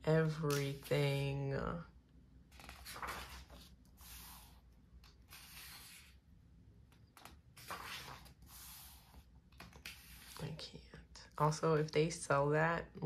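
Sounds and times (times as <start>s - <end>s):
glossy pages rustling: 2.5s - 6.2s, 7.0s - 10.6s.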